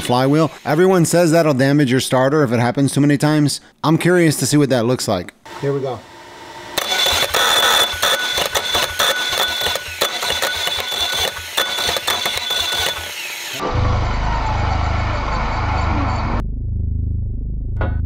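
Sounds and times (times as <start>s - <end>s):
high whine: 5.5s - 18.0s
starter gear grinding: 6.8s - 13.6s.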